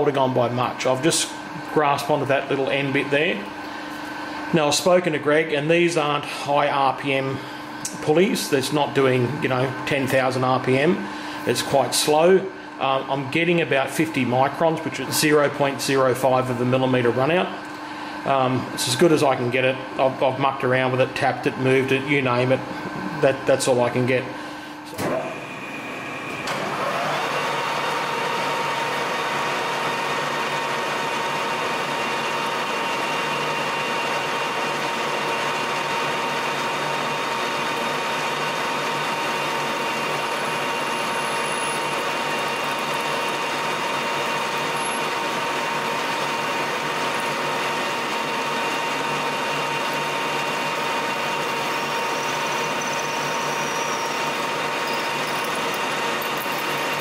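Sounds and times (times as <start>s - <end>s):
lathe running: 21.6s - 57.0s
drill boring into metal: 26.5s - 57.0s
gear whine: 35.5s - 57.0s.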